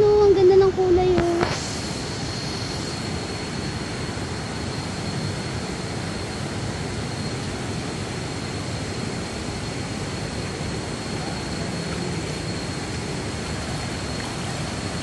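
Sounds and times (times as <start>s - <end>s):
thin high whine: 0.0s - 15.0s
waterfall rushing: 9.6s - 15.0s.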